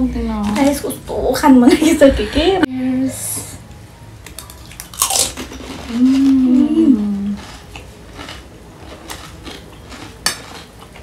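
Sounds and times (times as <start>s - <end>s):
crisp food crunch: 4.3s - 11.0s
woman humming mmm: 5.9s - 7.5s.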